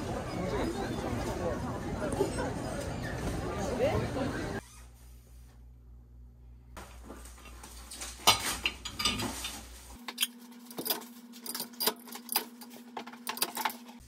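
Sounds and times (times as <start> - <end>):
ceramic plates clinking: 8.3 - 9.6.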